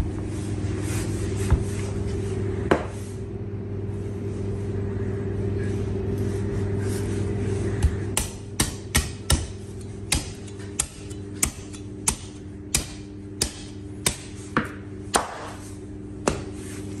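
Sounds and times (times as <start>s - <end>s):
steady low hum: 0.0s - 17.0s
cleaver chopping through bone: 8.2s - 15.6s.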